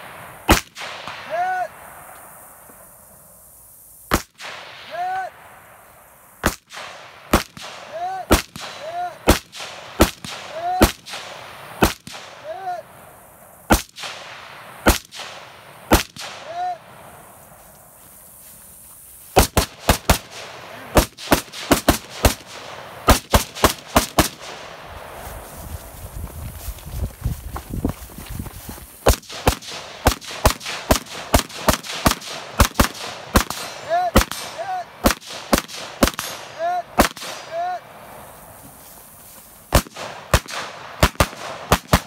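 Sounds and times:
gunshots: 0:00.0 - 0:01.6, 0:04.1 - 0:05.2, 0:06.4 - 0:12.6, 0:13.7 - 0:16.9, 0:19.4 - 0:24.9, 0:29.0 - 0:37.8, 0:39.7 - 0:42.0.

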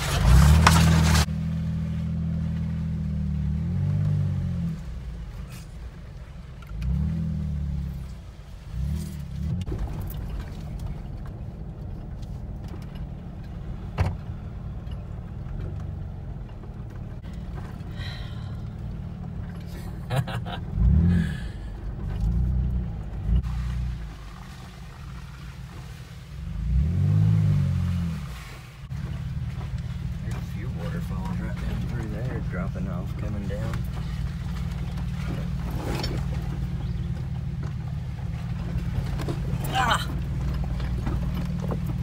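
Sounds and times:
engine revving: 0:00.0 - 0:05.6, 0:06.6 - 0:10.8, 0:17.2 - 0:25.3, 0:26.4 - 0:42.0
vehicle jolting knocks: 0:33.1 - 0:42.0.

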